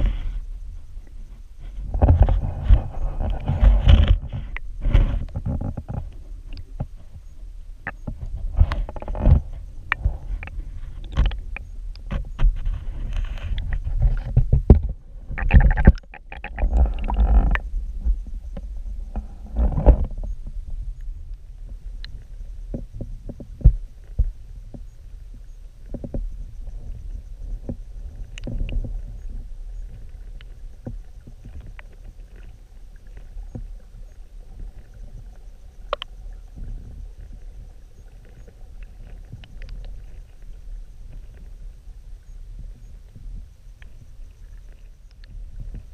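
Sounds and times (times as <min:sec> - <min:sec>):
muffled underwater water rumble: 0:00.0 - 0:45.9
underwater clicks and knocks: 0:01.8 - 0:24.9, 0:25.8 - 0:27.0, 0:27.6 - 0:41.6
water sloshing: 0:07.9 - 0:18.3.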